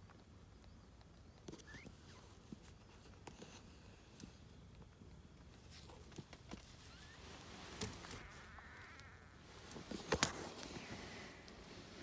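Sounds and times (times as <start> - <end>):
soft clicks of kittens nursing: 0.0 - 7.0.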